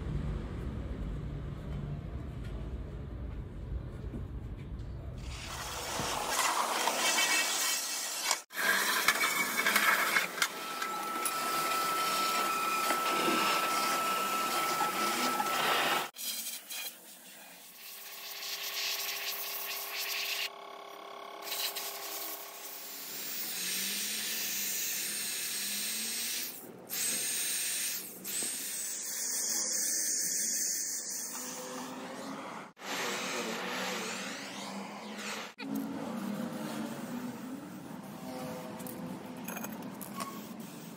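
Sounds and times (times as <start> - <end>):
scraping and wire-brushing rust: 5.2 - 20.5, 35.7 - 40.9
wire cup brush grinding steel: 5.4 - 17.0, 35.6 - 40.9.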